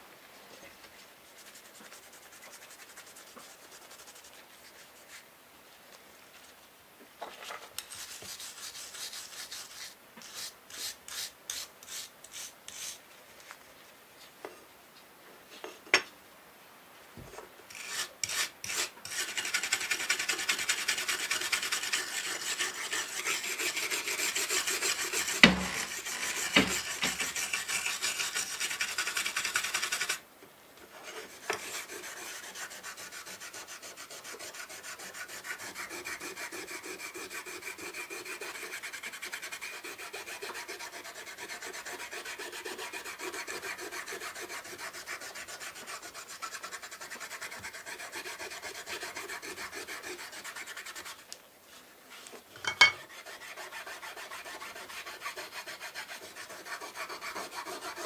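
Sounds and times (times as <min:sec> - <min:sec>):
stick rubbing metal plate: 0:22.1 - 0:30.2.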